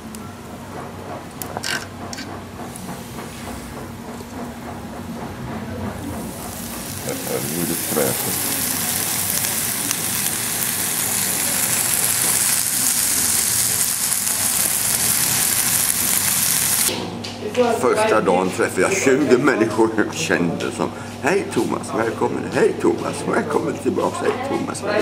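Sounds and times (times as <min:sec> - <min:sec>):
meat sizzling on a grill: 0:06.2 - 0:16.9.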